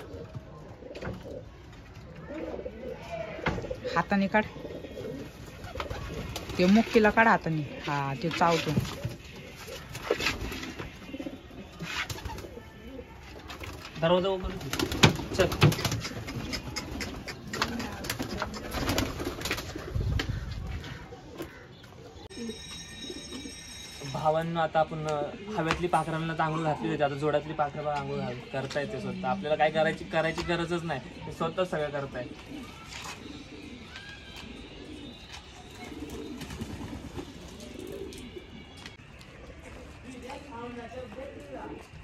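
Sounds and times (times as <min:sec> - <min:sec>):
pigeons cooing: 0:00.0 - 0:13.6, 0:14.6 - 0:23.6, 0:25.3 - 0:40.2.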